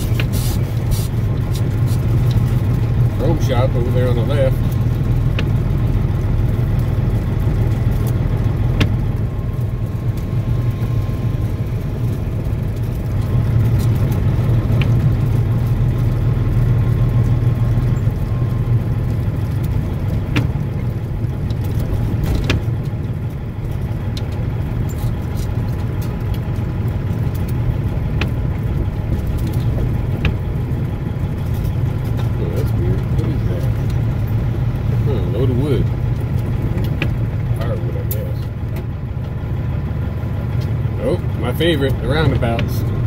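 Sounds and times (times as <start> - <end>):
diesel engine drone from cab: 0.0 - 43.0.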